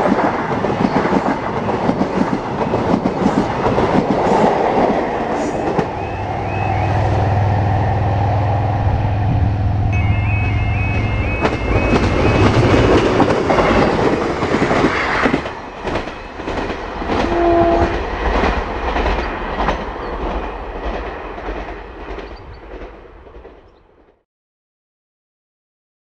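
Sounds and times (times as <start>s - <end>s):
train wheels clicking over rail joints: 11.4s - 23.8s
train horn note: 17.1s - 18.1s.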